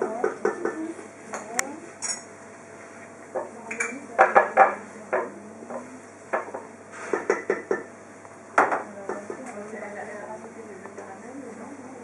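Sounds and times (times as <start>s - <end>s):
dishes and utensils clinking: 0.0s - 2.3s, 3.4s - 4.8s.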